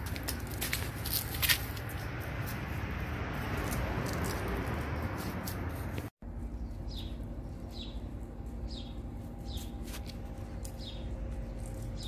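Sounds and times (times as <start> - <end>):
steady low hum: 6.2 - 12.0
small bird chirping: 6.4 - 12.0.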